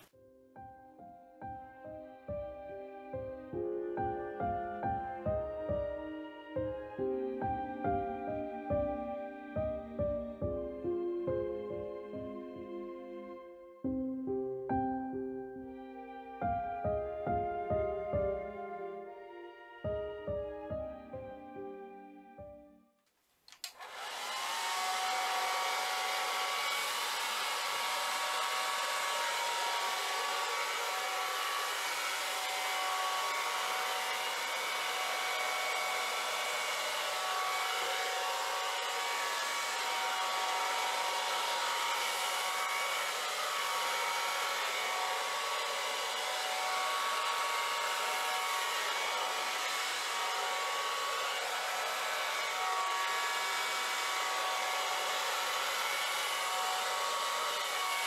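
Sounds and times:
hair dryer running: 23.5 - 58.0.

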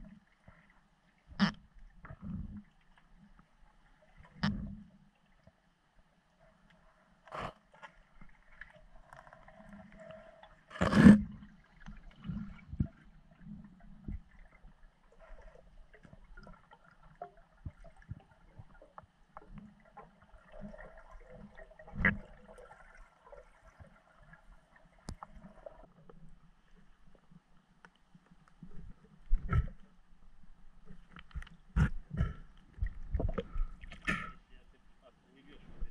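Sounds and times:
underwater gurgling: 0.0 - 5.6, 6.4 - 27.6, 28.5 - 34.6
small underwater clicks: 6.5 - 34.4.

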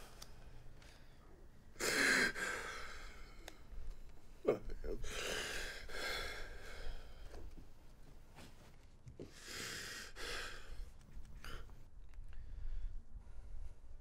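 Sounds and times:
man breathing heavily: 0.0 - 3.8, 4.8 - 7.6, 9.2 - 13.9.

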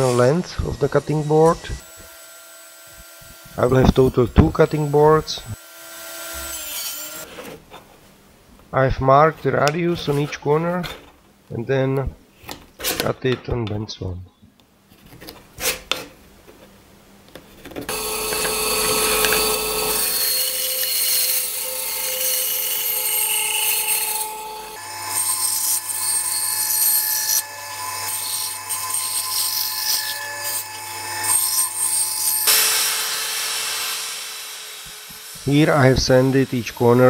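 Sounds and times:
band saw cutting wood: 0.0 - 7.6, 17.9 - 37.0.

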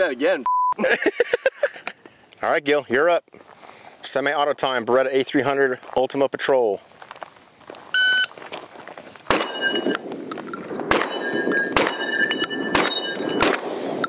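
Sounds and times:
bullet ringing steel target: 9.3 - 10.0, 10.8 - 13.7
shotgun shots: 9.3 - 10.1, 10.7 - 14.0.

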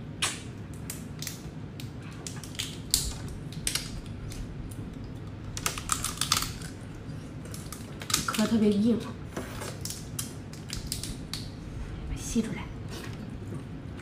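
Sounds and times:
shell cracking and snapping: 0.2 - 8.5, 9.7 - 11.6.

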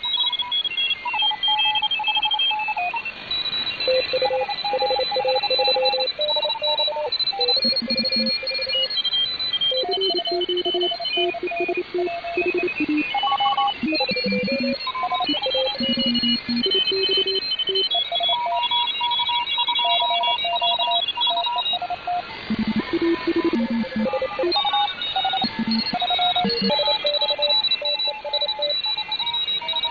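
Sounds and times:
radio signals beeping at shifting pitches: 0.0 - 29.9
steady radio hiss: 22.2 - 27.4.

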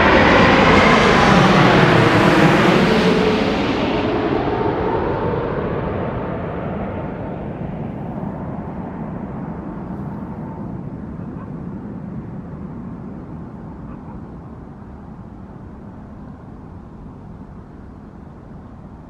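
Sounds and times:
airplane engine rumble: 0.0 - 19.0
faint whine: 6.0 - 19.0.

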